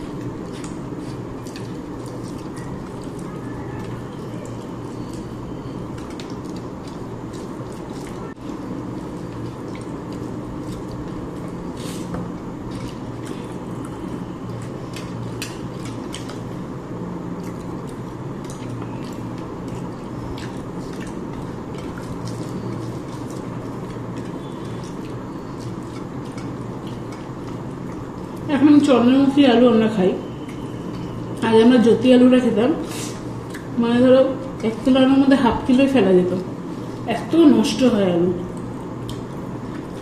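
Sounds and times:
wet eating sounds: 0.0s - 32.0s, 32.7s - 35.4s, 36.2s - 40.0s
steady low hum: 0.0s - 40.0s.

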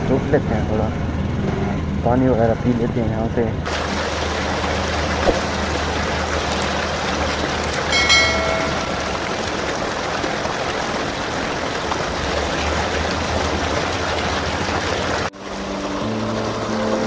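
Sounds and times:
low engine hum: 0.0s - 17.0s
flowing water rushing: 3.6s - 17.0s.

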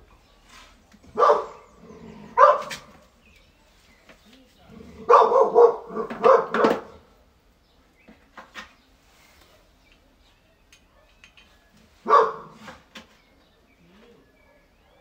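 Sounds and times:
dog barking: 1.1s - 1.7s, 2.3s - 2.9s, 5.0s - 7.0s, 10.9s - 11.2s, 12.0s - 12.8s, 14.4s - 15.0s
faint metallic clicks and taps: 10.7s - 11.7s.

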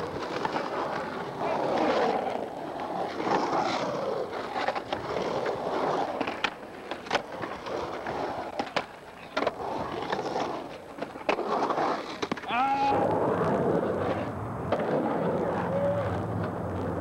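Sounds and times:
skateboard clicks: 0.0s - 12.6s
skateboard wheels rolling on concrete: 0.0s - 17.0s.

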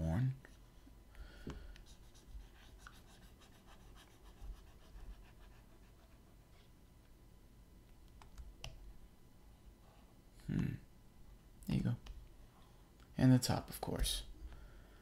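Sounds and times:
pen scratching on graphics tablet: 1.8s - 6.5s.

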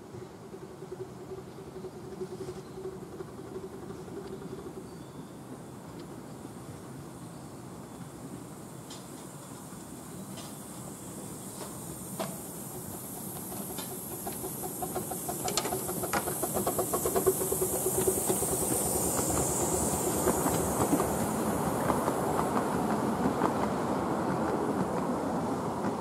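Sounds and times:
steady high hiss: 0.0s - 26.0s
train wheels clicking over rail joints: 8.7s - 26.0s.

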